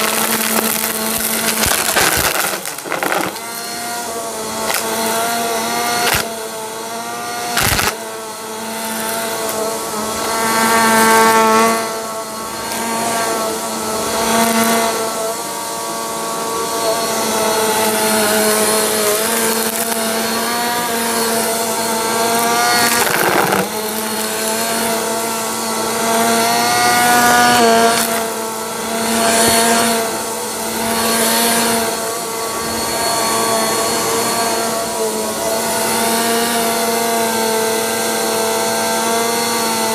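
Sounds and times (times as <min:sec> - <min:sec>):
debris cracking in vacuum: 0:00.0 - 0:06.5, 0:07.2 - 0:08.1, 0:17.7 - 0:31.7
vacuum cleaner running on carpet: 0:00.0 - 0:39.9.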